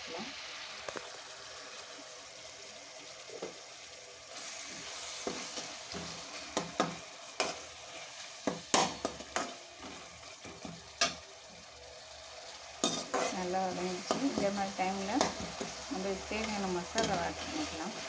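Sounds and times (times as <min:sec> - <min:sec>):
vegetables sizzling in oil: 0:00.0 - 0:18.0
metal spatula scraping pan: 0:12.8 - 0:18.0.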